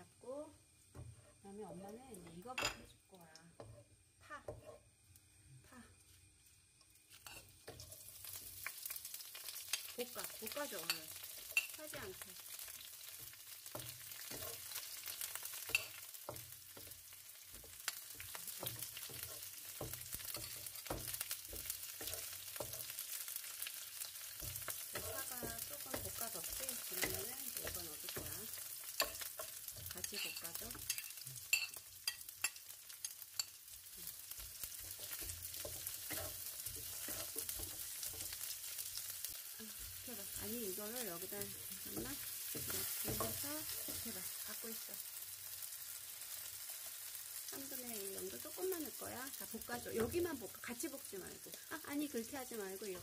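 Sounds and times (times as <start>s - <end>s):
scallions sizzling in hot oil: 0.0s - 53.0s
wooden spatula scraping a wok: 0.9s - 1.6s, 3.6s - 4.9s, 7.1s - 32.3s, 33.0s - 44.8s
utensils tapping on pan: 6.8s - 44.8s, 47.9s - 50.6s, 52.1s - 53.0s.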